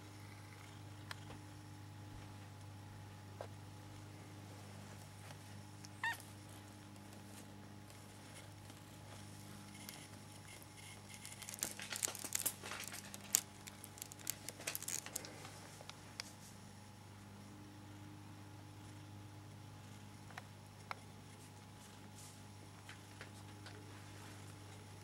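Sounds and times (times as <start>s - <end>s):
kitten mewing: 6.0s - 6.2s
wicker basket crackling: 6.8s - 15.6s.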